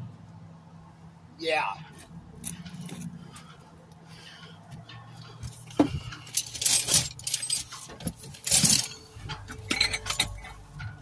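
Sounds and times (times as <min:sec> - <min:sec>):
rustling and clinking: 0:02.0 - 0:03.6, 0:04.4 - 0:11.0.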